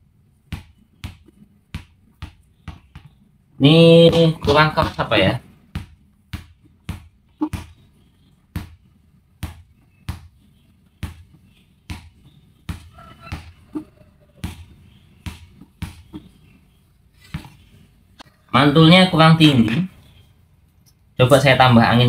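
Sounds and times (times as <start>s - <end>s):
basketball bouncing on tile floor: 0.4s - 3.2s, 5.7s - 16.3s.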